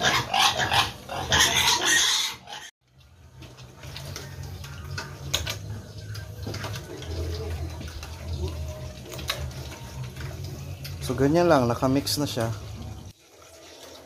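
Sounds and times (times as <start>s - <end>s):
piglets slurping wet feed: 2.9s - 14.0s.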